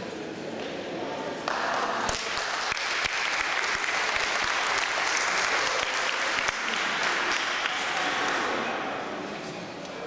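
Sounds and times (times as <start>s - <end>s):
crowd applauding: 1.5s - 8.7s.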